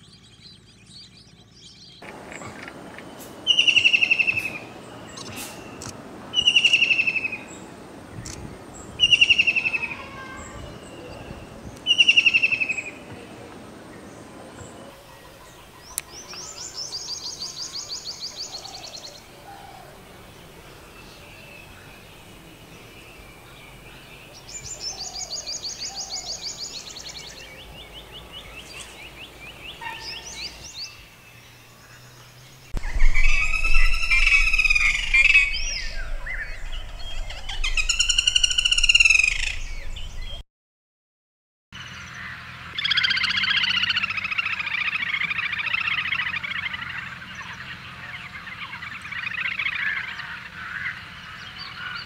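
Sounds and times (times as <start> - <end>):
bird chirps: 0.0 - 13.4, 14.0 - 40.4
bird rich arching calls: 0.0 - 40.4, 41.8 - 52.0
small bird high trill: 37.4 - 39.8.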